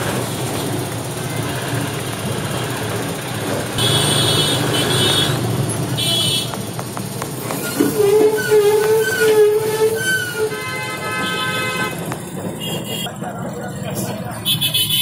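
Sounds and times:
traffic engine and road rumble: 0.0 - 15.0
long low horn tone: 3.8 - 6.5, 7.8 - 13.0.

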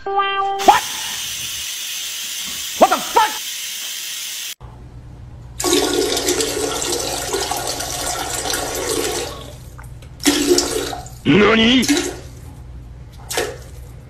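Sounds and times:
toilet flushing: 5.6 - 11.2, 11.8 - 12.4.

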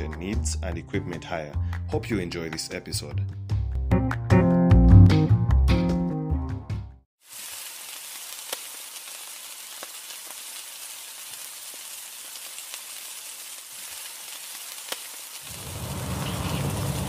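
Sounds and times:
hot oil sizzling in a frying pan: 7.2 - 17.0.

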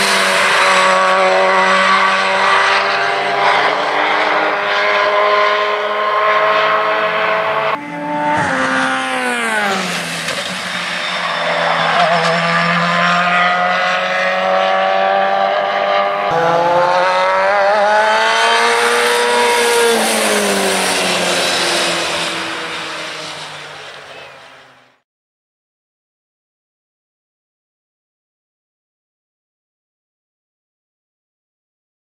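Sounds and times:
racing car engines: 0.0 - 25.0.

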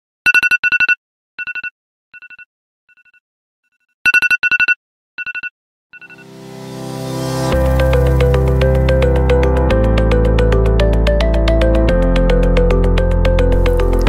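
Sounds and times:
music: 6.0 - 14.0.

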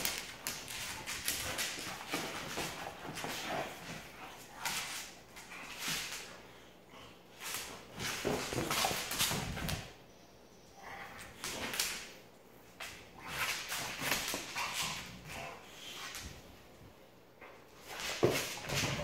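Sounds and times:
dog scuffling with toy: 0.0 - 6.6, 7.4 - 9.9, 12.7 - 16.9, 17.6 - 19.0.

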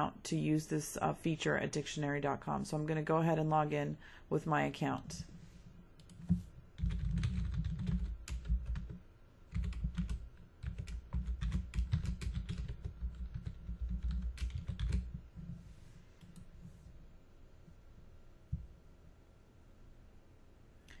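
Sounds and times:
keyboard typing: 6.0 - 15.2.

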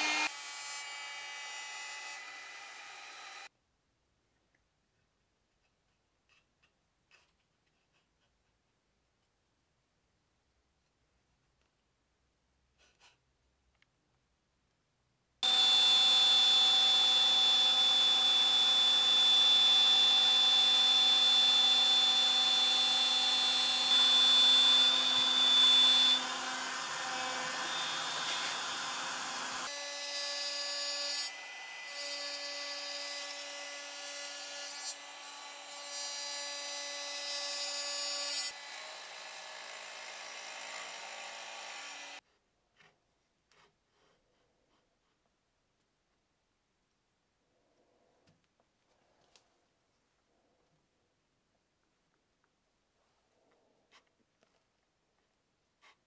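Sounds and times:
router high-pitched whine: 0.0 - 3.5, 15.4 - 31.8.

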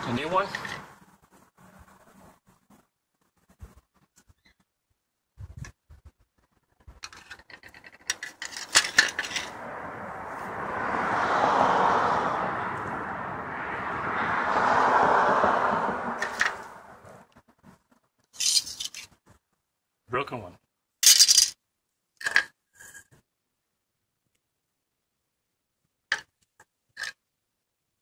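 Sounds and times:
metal clinks and knocks: 7.0 - 9.6, 18.4 - 19.1
broad rushing noise: 8.8 - 17.3.

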